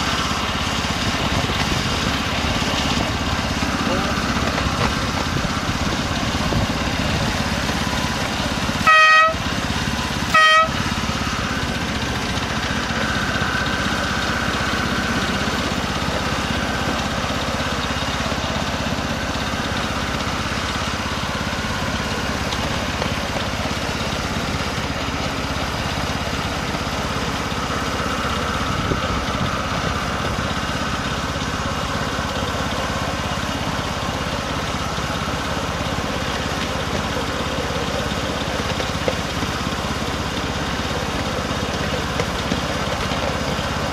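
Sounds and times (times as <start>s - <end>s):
miniature locomotive running: 0.0s - 43.9s
locomotive horn toots: 8.8s - 9.6s, 10.2s - 11.0s.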